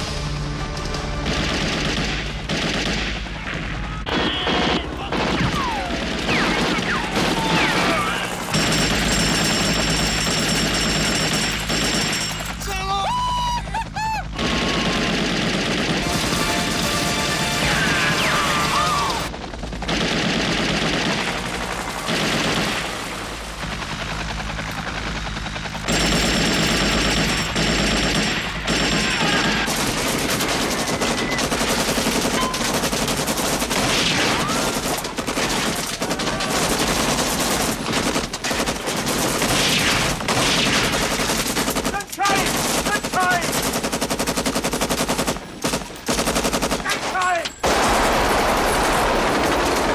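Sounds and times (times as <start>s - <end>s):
automatic machine-gun fire: 1.1s - 12.9s, 14.2s - 49.9s
men shouting: 17.4s - 19.3s, 28.9s - 29.8s.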